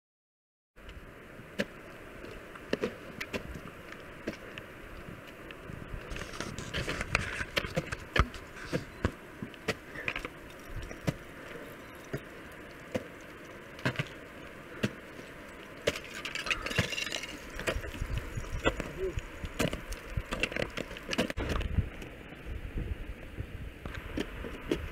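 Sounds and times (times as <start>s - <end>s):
ice crunching: 13.8s - 21.5s.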